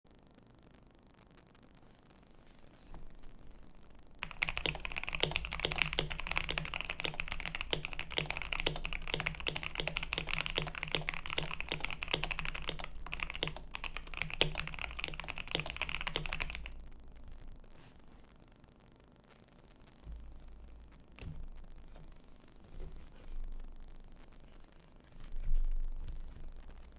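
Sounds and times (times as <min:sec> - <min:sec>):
mechanical keyboard typing: 0:04.2 - 0:16.8.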